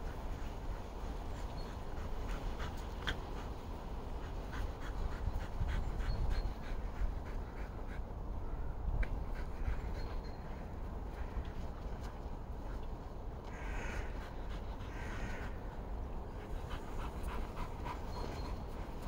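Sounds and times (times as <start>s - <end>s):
dog panting: 0.7s - 8.2s, 16.2s - 19.0s.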